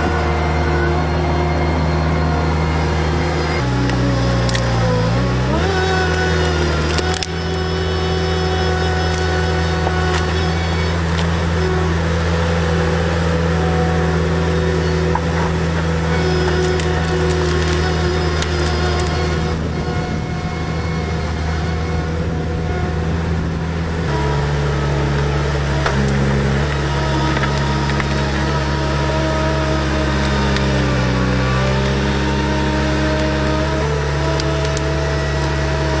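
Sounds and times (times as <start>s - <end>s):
loader engine labouring: 0.0s - 36.0s
roots and wood cracking: 3.2s - 19.9s, 25.0s - 36.0s.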